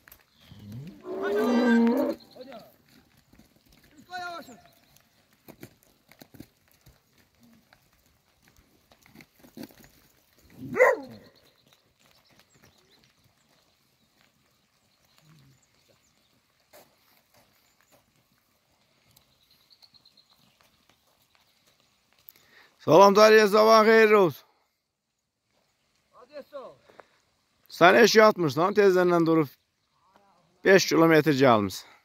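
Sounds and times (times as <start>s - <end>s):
cattle steps on dirt: 0.0s - 22.8s.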